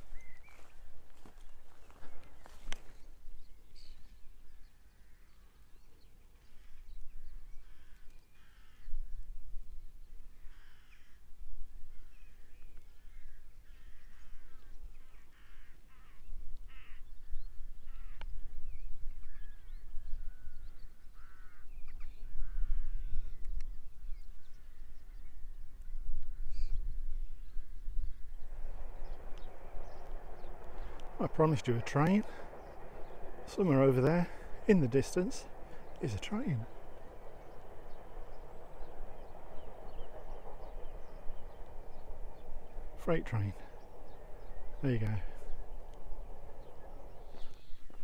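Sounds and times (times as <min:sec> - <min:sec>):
crows cawing: 0:07.6 - 0:09.0, 0:10.4 - 0:11.2, 0:13.0 - 0:17.1, 0:21.2 - 0:21.8, 0:32.2 - 0:34.6
low rumble: 0:28.1 - 0:48.0.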